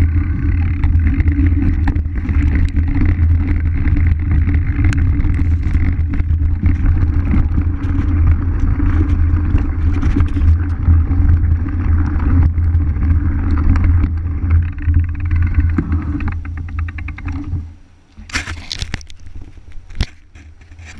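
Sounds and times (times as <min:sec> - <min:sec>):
freehub ticking: 0:00.0 - 0:17.6
wind and tyre rumble on gravel: 0:00.0 - 0:17.8.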